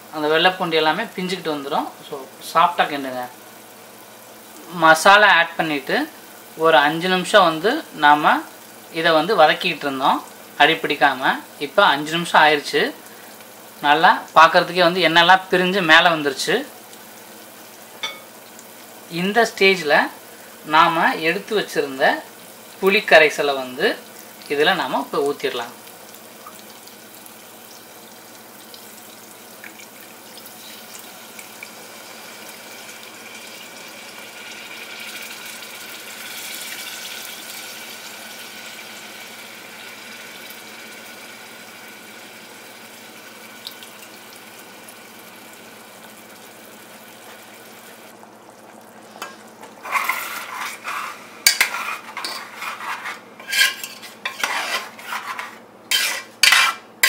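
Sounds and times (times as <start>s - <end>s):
gravy sizzling in a pot: 0.0s - 57.0s
metal ladle scraping a pot: 49.2s - 56.9s.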